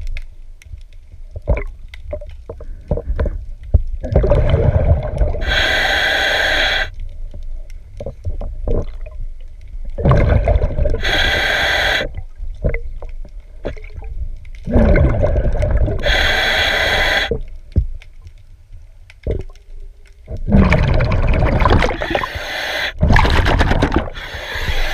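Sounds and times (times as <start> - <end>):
regulator exhale bubbling: 4.0 - 6.9, 10.0 - 12.2, 14.6 - 17.5, 20.4 - 24.9
regulator inhale hiss: 5.4 - 7.0, 11.0 - 12.2, 15.9 - 17.5, 22.0 - 23.0, 24.1 - 24.9.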